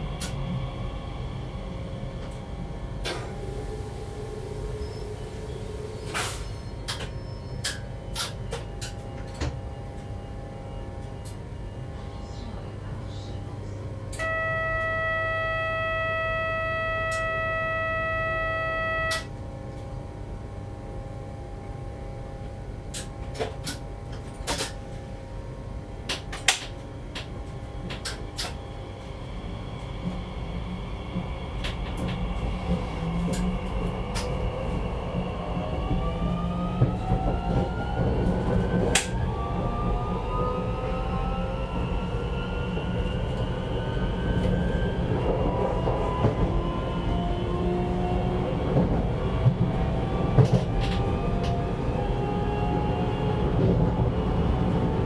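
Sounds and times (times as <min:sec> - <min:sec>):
train motor rumble and rising whine: 0:00.0 - 0:55.0
electronic warning tone: 0:14.2 - 0:19.3.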